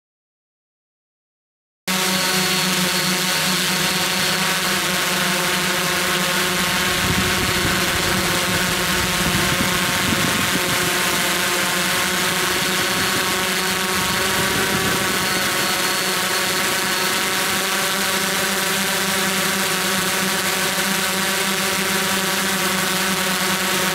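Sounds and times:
drone motors buzzing: 1.9s - 23.9s.

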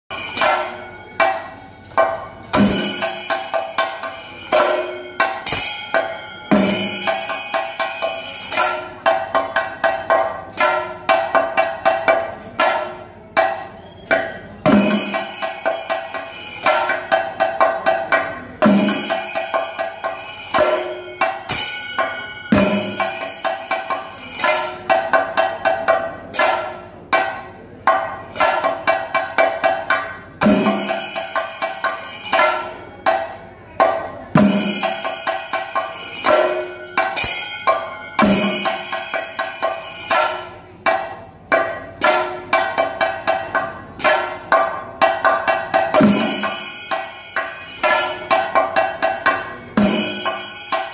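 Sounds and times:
drum ensemble playing: 0.1s - 13.5s, 14.6s - 33.2s, 33.8s - 50.9s
rapid stick drum strokes: 0.2s - 13.9s, 14.6s - 33.2s.

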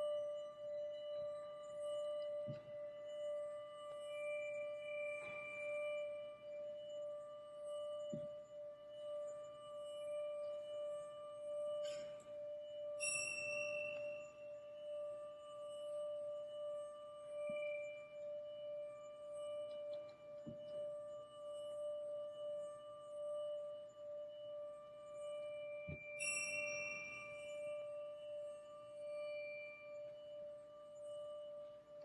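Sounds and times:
ringing metal tone: 9.4s - 19.6s, 25.1s - 31.9s
bright bell-like strike: 13.0s - 14.2s, 25.9s - 27.6s.

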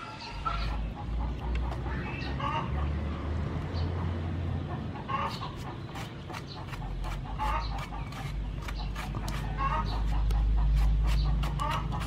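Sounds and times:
chickens clucking: 0.0s - 12.0s
knife cutting and scraping fruit: 5.3s - 12.0s.

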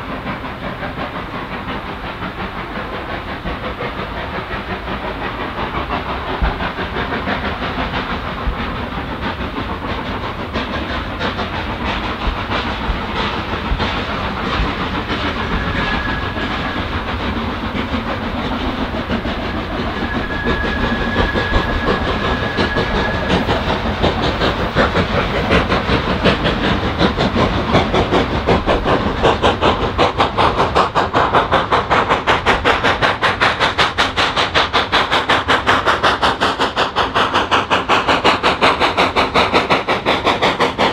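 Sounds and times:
steam locomotive chuffing: 0.0s - 40.9s.

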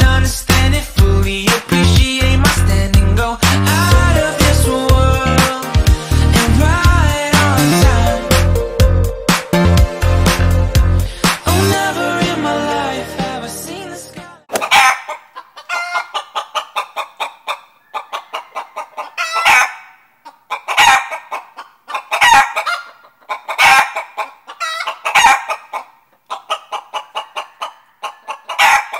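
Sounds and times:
chicken cackling: 14.5s - 28.9s.

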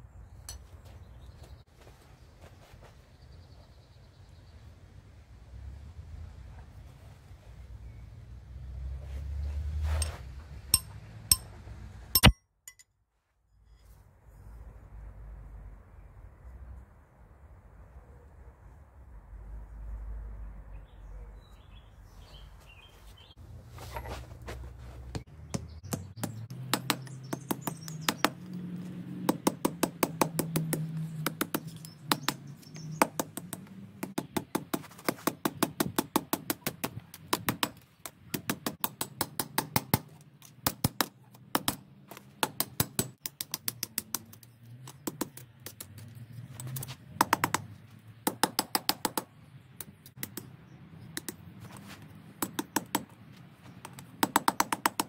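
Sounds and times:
hammer striking steel on anvil: 10.0s - 11.6s, 12.2s - 12.9s.

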